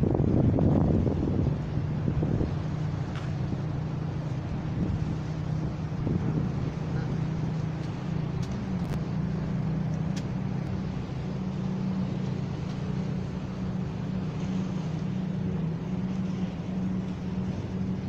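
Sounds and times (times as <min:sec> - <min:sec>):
low engine drone: 0:00.0 - 0:18.0
faint clicks: 0:07.8 - 0:09.0.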